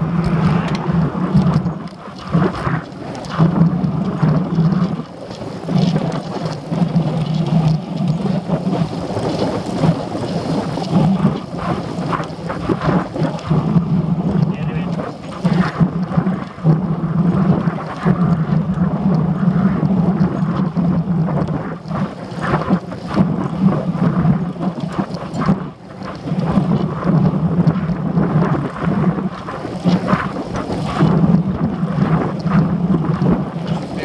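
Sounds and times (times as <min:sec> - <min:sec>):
wind buffeting microphone: 0:00.0 - 0:34.0.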